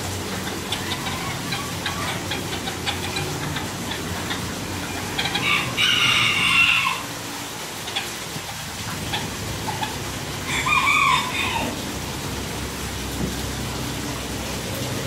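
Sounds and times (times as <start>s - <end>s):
fountain splashing into pond: 0.0s - 15.0s
rooster crowing: 4.9s - 7.1s, 10.4s - 11.8s.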